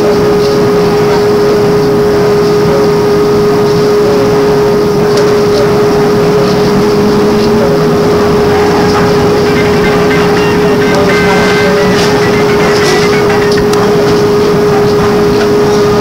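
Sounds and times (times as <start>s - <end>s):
constant hum: 0.0s - 16.0s
trolleybus interior rumble: 0.0s - 16.0s
faint rising tone: 5.6s - 14.5s.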